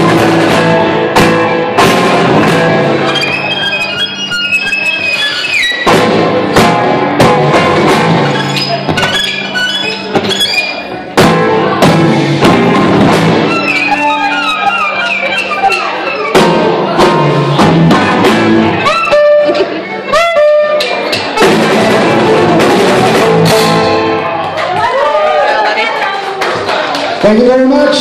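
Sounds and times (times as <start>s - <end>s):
drum kit: 0.0s - 25.0s
electric bass guitar: 0.0s - 25.3s.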